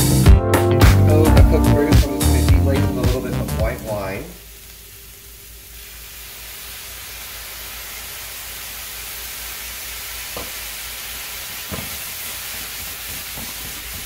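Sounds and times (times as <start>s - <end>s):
food sizzling in frying pan: 3.8s - 14.0s.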